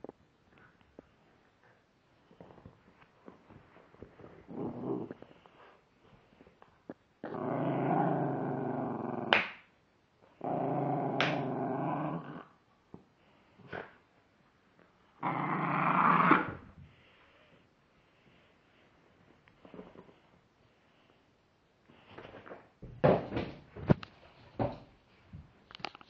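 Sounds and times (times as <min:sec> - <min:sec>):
dog growling: 0:04.2 - 0:05.4, 0:07.2 - 0:09.4, 0:10.4 - 0:12.6, 0:15.2 - 0:16.7.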